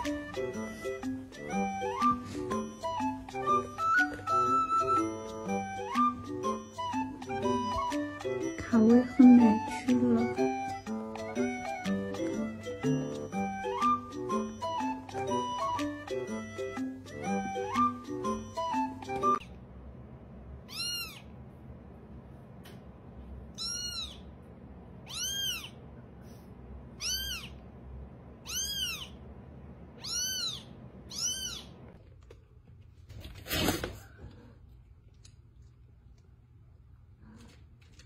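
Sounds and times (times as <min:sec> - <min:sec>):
kitten mewing: 0:20.7 - 0:21.3, 0:23.5 - 0:24.3, 0:25.0 - 0:25.8, 0:27.0 - 0:27.6, 0:28.4 - 0:29.2, 0:30.0 - 0:31.7.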